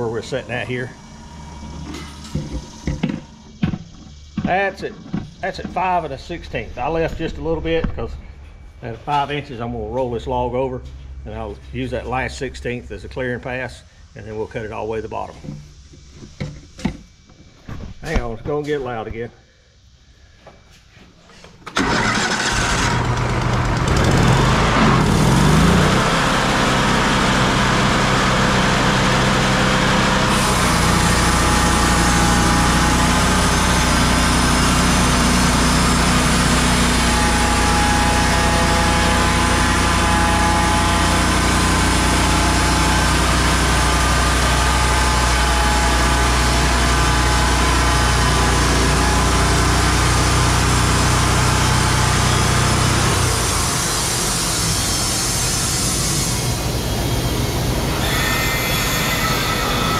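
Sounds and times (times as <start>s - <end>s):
sawmill engine revving: 0.0s - 4.3s, 21.8s - 59.9s
band saw blade cutting log: 28.9s - 56.5s.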